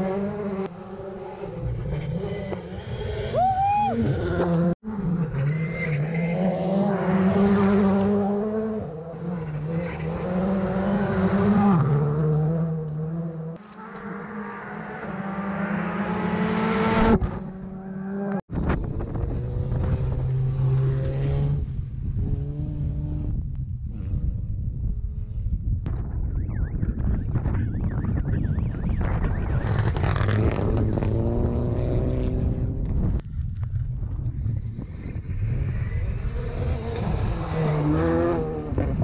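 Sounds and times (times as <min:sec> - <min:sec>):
rally car engines revving high: 0:04.0 - 0:18.4, 0:35.2 - 0:39.0.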